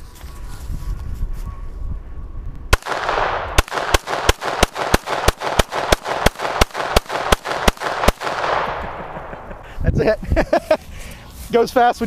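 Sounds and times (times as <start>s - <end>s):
wind rumbling on microphone: 0.0s - 4.3s, 5.5s - 11.1s
pistol shots with echo: 2.7s - 9.4s.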